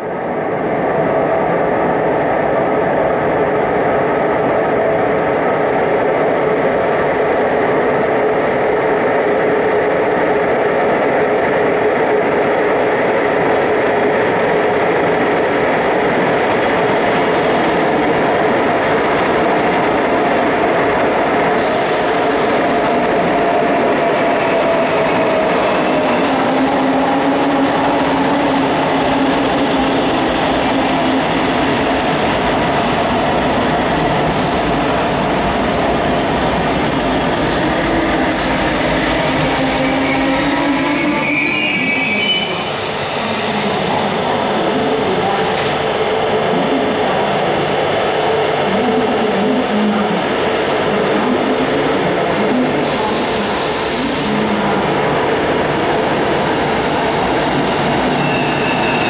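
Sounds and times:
high squeal: 23.8s - 25.4s, 39.7s - 42.7s, 58.0s - 59.0s.

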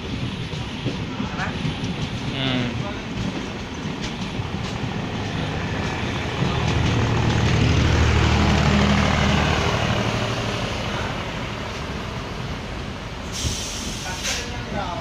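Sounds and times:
diesel locomotive engine throbbing: 0.0s - 15.0s
passing train running noise: 0.0s - 15.0s.

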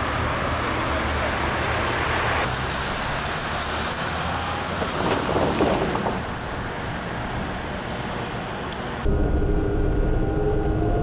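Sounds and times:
passing cars on street: 0.0s - 11.0s.

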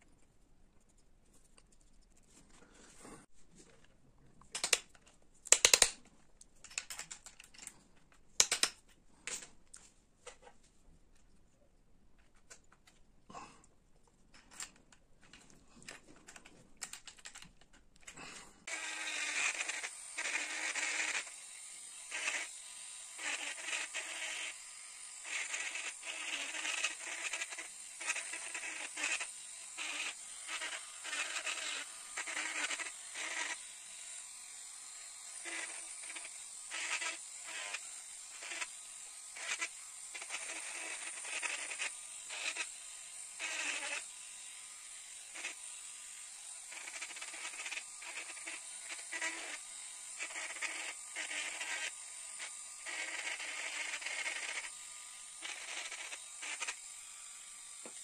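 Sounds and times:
rotary tool grinding wood: 15.7s - 58.0s.

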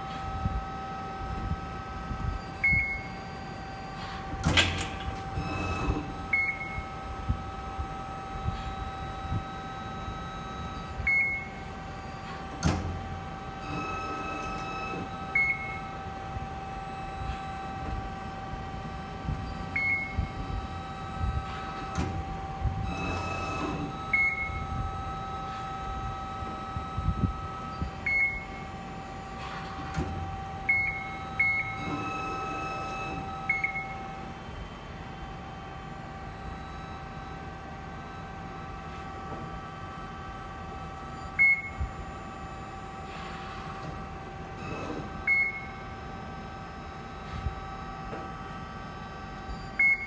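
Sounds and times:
motor whine: 0.0s - 50.0s
short electronic beeps: 2.4s - 4.2s, 5.4s - 7.0s, 9.2s - 11.6s, 13.7s - 15.9s, 19.5s - 21.3s, 22.9s - 24.7s, 26.9s - 28.6s, 30.7s - 34.0s, 41.2s - 41.8s, 45.3s - 45.8s, 49.5s - 50.0s
machine clunk: 4.0s - 6.7s, 12.3s - 13.1s.

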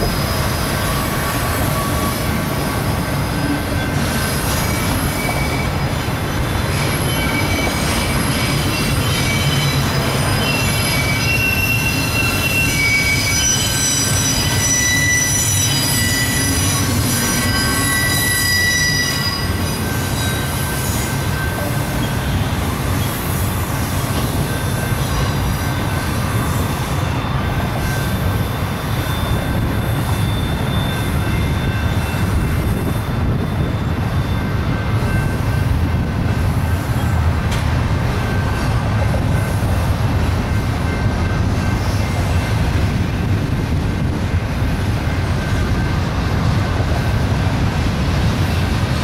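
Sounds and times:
high-pitched wheel squeal: 0.0s - 35.4s
train wheels rumbling on rails: 0.0s - 49.0s.

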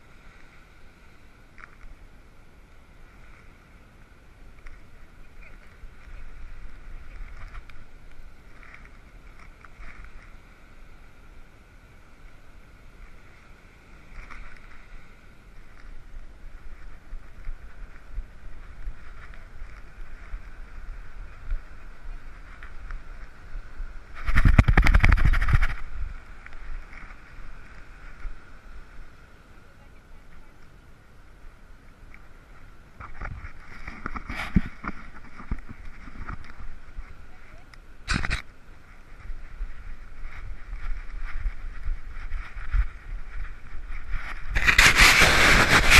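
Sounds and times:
wind: 0.0s - 45.9s
breaking surf: 39.1s - 45.9s
loud rubbing scrape: 44.5s - 45.9s.

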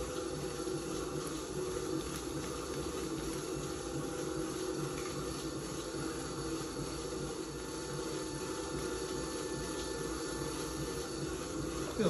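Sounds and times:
potter's wheel humming: 0.0s - 12.0s.

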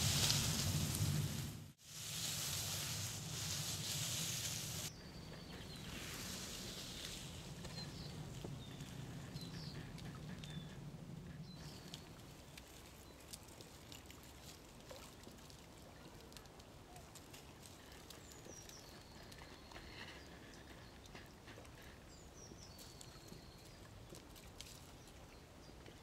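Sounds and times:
dry twigs crackling in hands: 0.0s - 4.9s.

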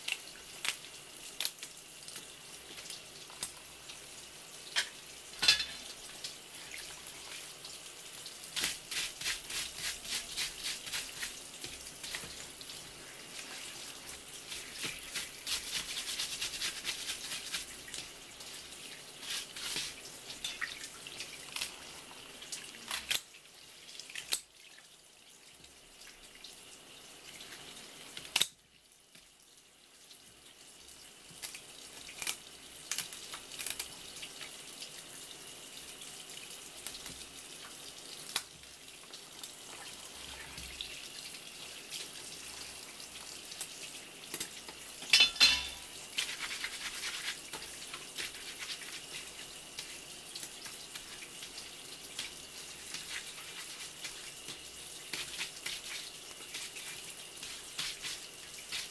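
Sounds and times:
hands scraping crab shell: 14.5s - 17.7s, 46.2s - 49.3s.

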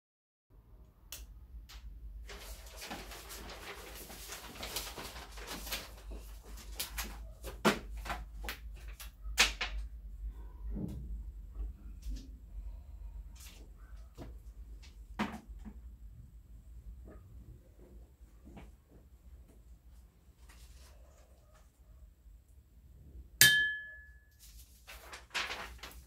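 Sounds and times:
wrapping crinkling and rustling: 2.2s - 9.2s, 24.3s - 26.0s.

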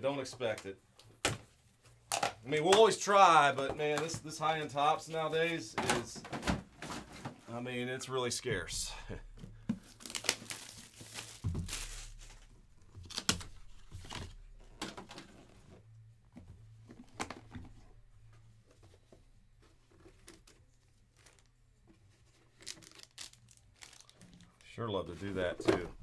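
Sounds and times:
cardboard handled: 9.2s - 15.7s
packaging crinkling and tearing: 9.7s - 14.3s, 22.4s - 24.7s.

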